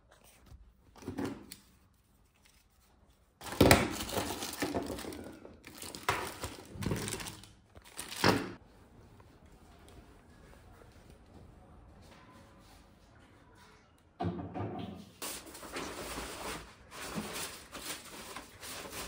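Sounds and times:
plastic packaging crinkling: 3.4 - 8.6, 15.2 - 19.0.

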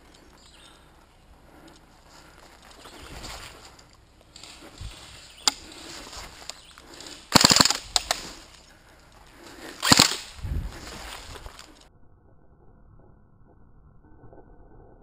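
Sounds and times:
airsoft guns firing: 7.3 - 8.4, 9.8 - 10.3.

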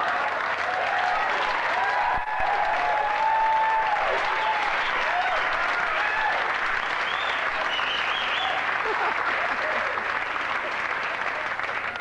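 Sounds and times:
audience applauding: 0.0 - 12.0
audience laughing: 7.6 - 11.6.

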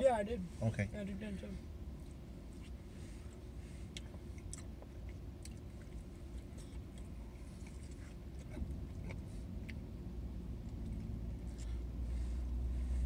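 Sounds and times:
steady low rumble: 0.0 - 13.0
chewing sounds: 2.0 - 9.9.

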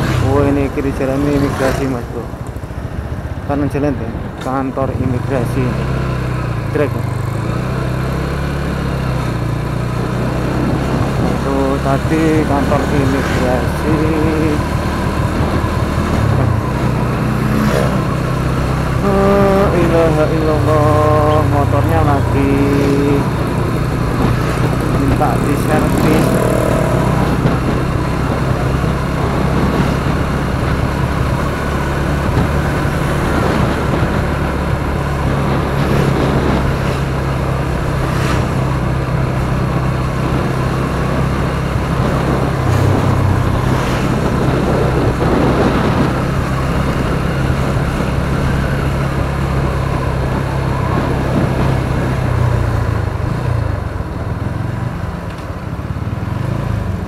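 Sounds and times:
person speaking: 0.0 - 2.4, 3.5 - 5.8, 6.6 - 7.1, 11.2 - 14.8, 16.4 - 27.6
motorcycle engine running: 0.0 - 57.0
wind rushing over microphone: 0.0 - 57.0.

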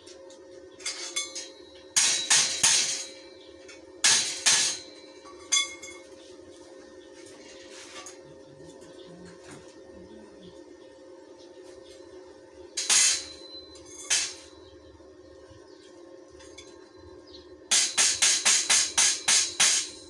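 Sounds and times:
metallic clinking and crackle: 0.2 - 6.2, 12.8 - 14.6
metal ringing: 0.8 - 6.1, 12.8 - 14.6.

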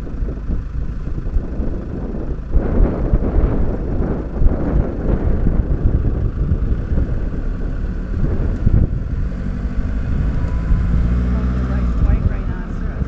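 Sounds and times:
vehicle engine rumble: 0.0 - 13.0
wind buffeting the microphone: 0.0 - 13.0.

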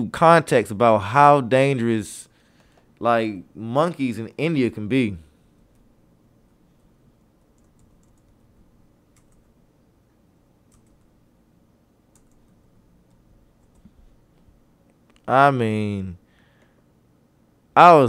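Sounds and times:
keyboard typing: 7.4 - 8.5, 9.1 - 9.5, 10.6 - 11.1, 12.1 - 14.1.

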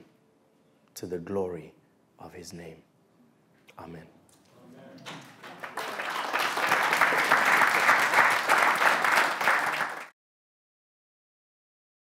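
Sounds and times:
audience applauding: 5.0 - 10.2.

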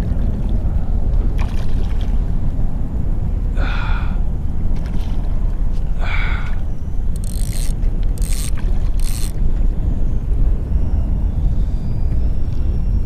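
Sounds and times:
choppy water: 0.0 - 10.5
short pitched buzz: 6.8 - 12.5.

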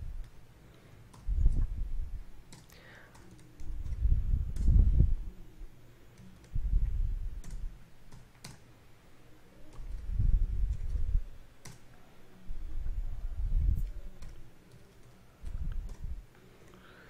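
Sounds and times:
computer keyboard typing: 2.4 - 4.8, 6.1 - 6.6, 7.4 - 8.6, 9.7 - 11.9, 14.0 - 16.8.

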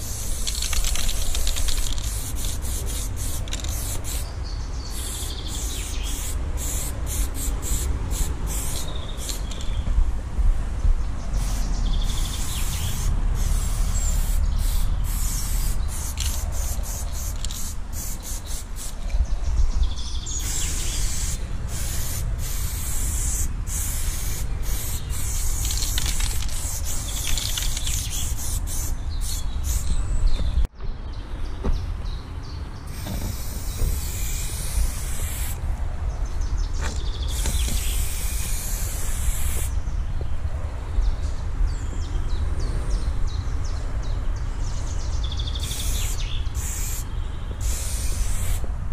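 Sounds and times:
spray paint cans hissing: 0.0 - 4.3, 4.9 - 9.8, 11.4 - 19.0, 20.4 - 30.0, 32.9 - 35.6, 37.2 - 39.7, 45.6 - 48.7.

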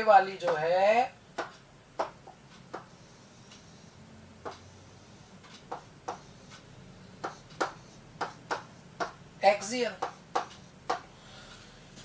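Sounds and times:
faint room hiss: 0.0 - 12.0
pen tapping on glass board: 1.4 - 2.9, 4.4 - 4.7, 5.5 - 6.6, 7.2 - 9.2, 9.9 - 11.1.

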